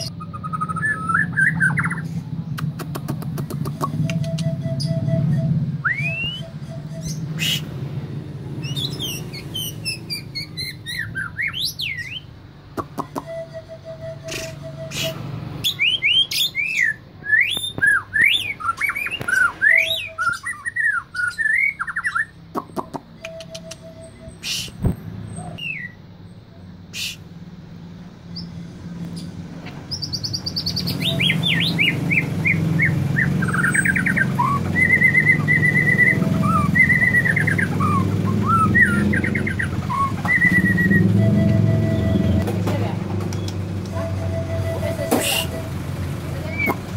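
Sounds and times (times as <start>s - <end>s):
bird singing whistled warbles: 0.0s - 2.8s, 3.5s - 7.9s, 8.5s - 26.4s, 28.3s - 42.5s
sharp clicks: 2.6s - 4.5s, 22.5s - 23.9s, 43.2s - 44.0s.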